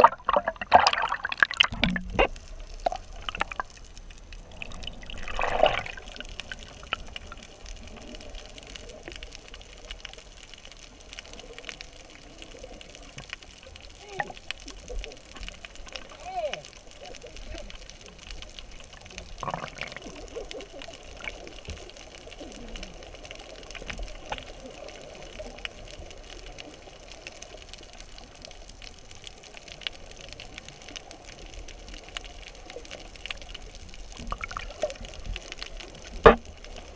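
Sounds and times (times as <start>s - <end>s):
bubbles: 0.0s - 9.4s, 14.0s - 26.6s, 32.5s - 36.9s
muffled underwater water wash: 0.0s - 36.9s.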